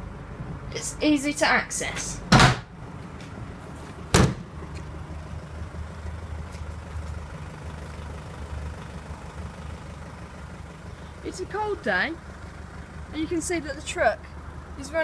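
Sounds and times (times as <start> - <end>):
diesel engine idling: 0.0 - 15.0
pickup tailgate slams: 2.3 - 2.7, 4.1 - 4.5.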